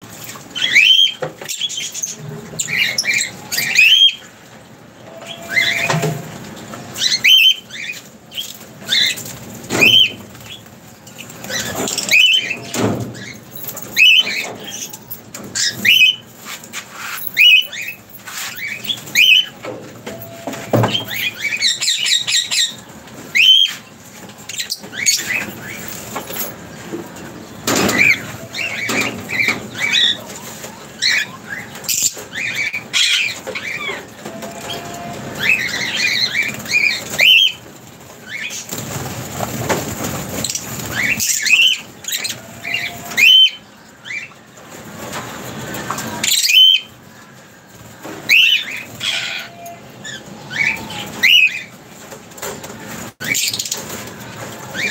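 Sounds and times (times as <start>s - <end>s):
wing flaps and rustling: 5.2s - 43.3s, 50.0s - 54.9s
lovebirds chirping: 17.2s - 19.6s.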